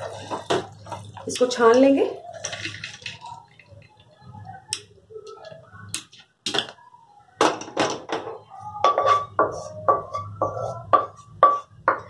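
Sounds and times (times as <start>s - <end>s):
metal utensils clinking: 0.0s - 3.6s.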